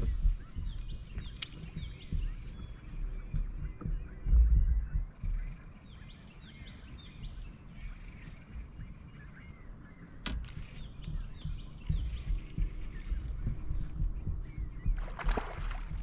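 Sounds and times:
birds chirping: 0:00.0 - 0:16.0
low rumble: 0:00.0 - 0:16.0
sharp click: 0:01.2 - 0:01.7.

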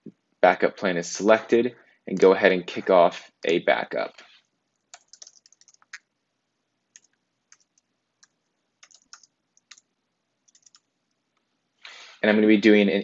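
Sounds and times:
faint keyboard typing: 0:02.1 - 0:02.4, 0:04.2 - 0:06.2, 0:06.9 - 0:11.5.

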